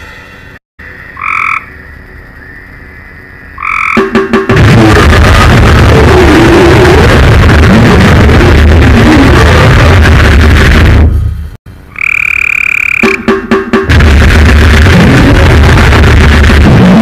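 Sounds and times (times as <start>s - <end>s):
croak-like calls: 0.8s - 4.4s, 11.9s - 13.4s
dense distorted noise: 2.8s - 17.0s
stuttering hits: 4.0s - 11.4s, 13.0s - 17.0s.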